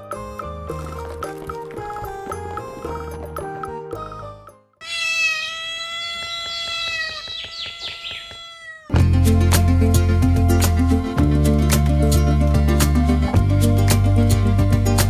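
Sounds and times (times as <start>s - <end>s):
music: 0.0s - 4.8s, 8.9s - 15.0s
cat meowing: 4.8s - 9.0s.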